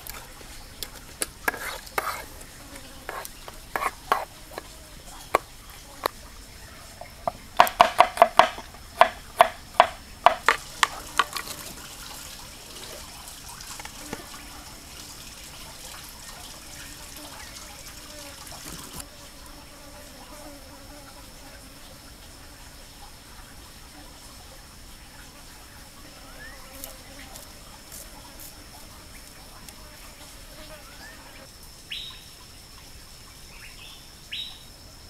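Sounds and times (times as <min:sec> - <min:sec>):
high insect drone: 0:00.0 - 0:35.0
metal spoon knocking wooden bowl: 0:07.3 - 0:11.4.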